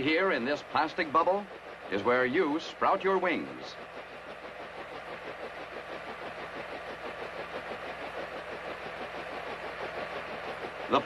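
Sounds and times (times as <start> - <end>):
helicopter engine idling: 0.0 - 11.0.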